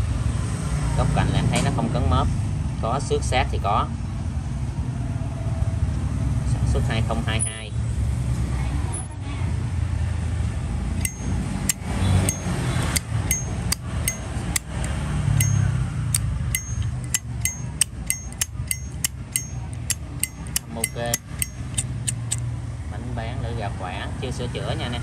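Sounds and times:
lighter lid clicking open and shut: 16.1s - 22.4s.

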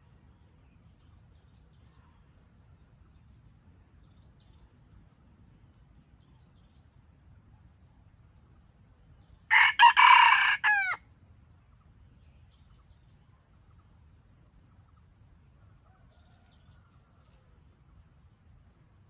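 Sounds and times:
rooster crowing: 9.5s - 11.0s.

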